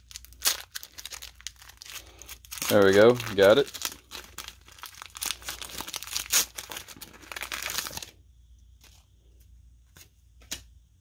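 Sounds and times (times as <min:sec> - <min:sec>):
wrapper tearing and crinkling: 0:00.0 - 0:08.1.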